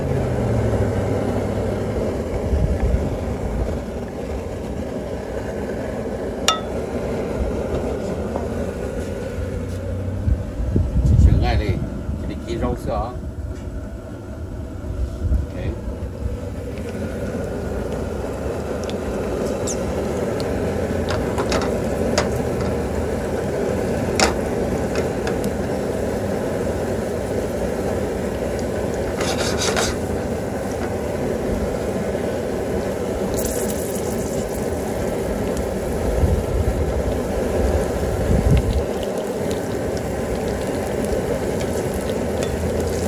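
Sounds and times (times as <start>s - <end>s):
garlic sizzling in oil: 0.0s - 10.2s, 16.1s - 43.0s
sharp hiss: 33.2s - 34.8s.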